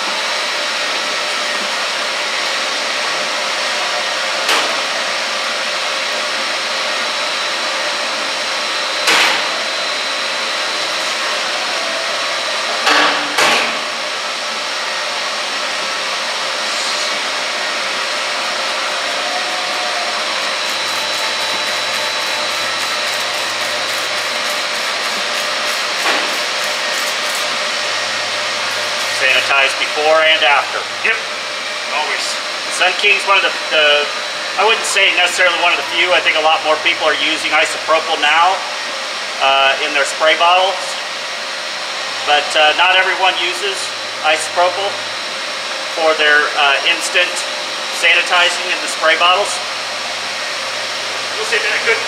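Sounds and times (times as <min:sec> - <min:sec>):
equipment blowing noise: 0:00.0 - 0:52.0.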